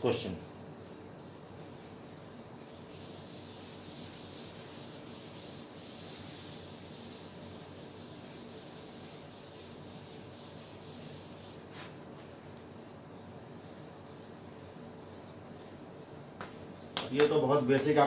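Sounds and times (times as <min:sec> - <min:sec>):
chalkboard being wiped: 0:01.0 - 0:12.3.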